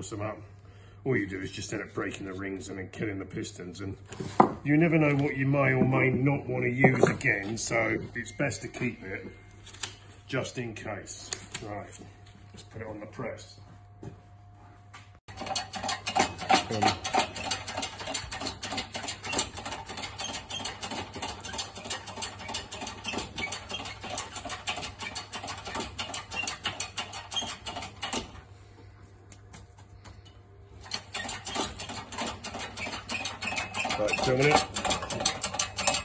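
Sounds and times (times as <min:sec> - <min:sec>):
hydraulic press clattering: 0:04.3 - 0:09.4, 0:15.3 - 0:28.4, 0:30.8 - 0:36.0.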